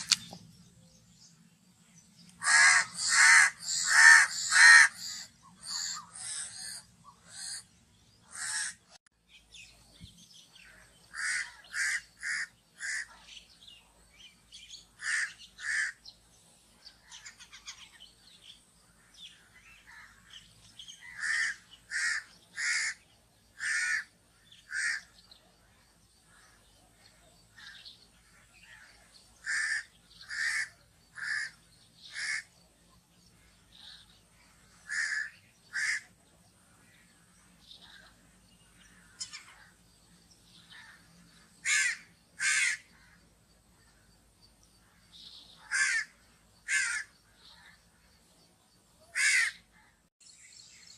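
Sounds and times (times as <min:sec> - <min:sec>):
crow cawing: 0:02.4 - 0:07.6, 0:08.2 - 0:09.0, 0:11.1 - 0:13.2, 0:15.0 - 0:16.0, 0:21.0 - 0:23.0, 0:23.6 - 0:25.1, 0:28.6 - 0:32.5, 0:34.8 - 0:36.1, 0:40.7 - 0:43.2, 0:45.6 - 0:47.7, 0:49.1 - 0:49.9.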